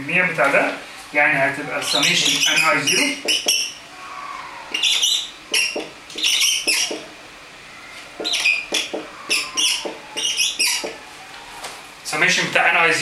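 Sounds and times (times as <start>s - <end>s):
marker squeaking on whiteboard: 1.8s - 3.8s, 4.7s - 7.2s, 7.9s - 11.2s.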